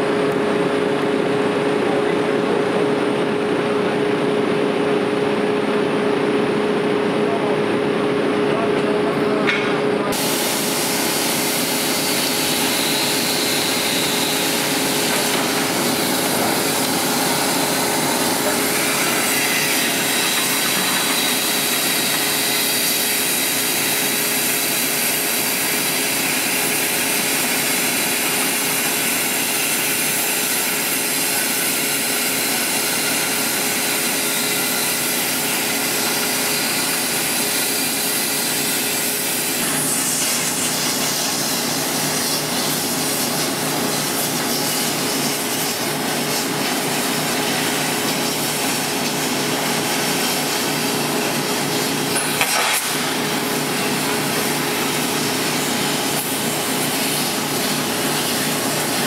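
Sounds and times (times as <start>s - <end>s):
disc cutter grinding steel: 10.2s - 41.1s.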